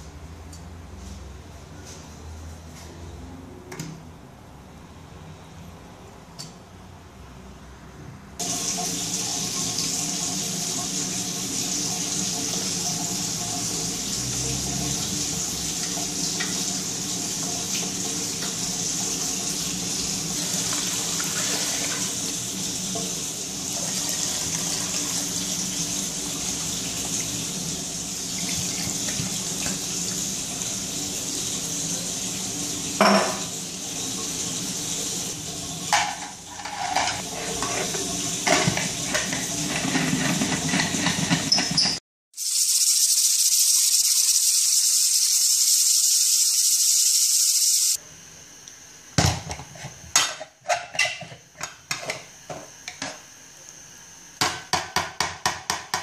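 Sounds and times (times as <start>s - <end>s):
tap water filling metal pot: 8.4s - 31.6s, 32.9s - 41.8s.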